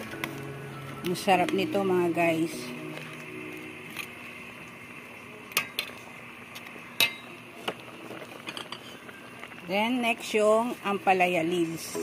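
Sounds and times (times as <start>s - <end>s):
boiling soup hiss: 0.0s - 12.0s.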